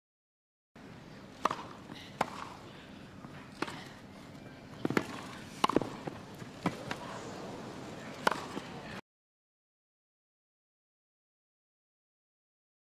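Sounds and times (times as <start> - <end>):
tennis ball pops: 1.4 - 2.6, 4.8 - 7.0, 8.2 - 8.7.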